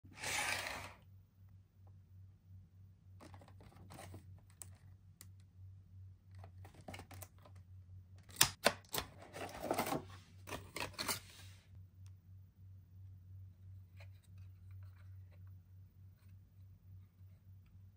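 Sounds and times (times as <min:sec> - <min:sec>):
steady low hum: 0:00.1 - 0:08.4, 0:09.1 - 0:17.9
cardboard and plastic rustling: 0:03.2 - 0:04.8, 0:09.1 - 0:11.6.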